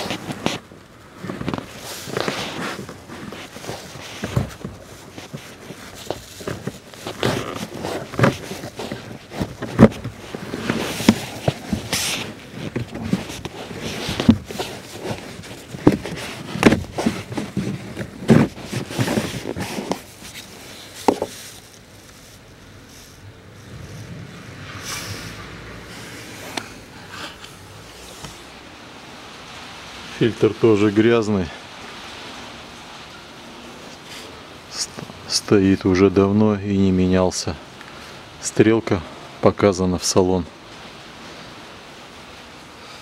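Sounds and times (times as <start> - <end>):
paper filter rustling and scraping: 0.0 - 24.2.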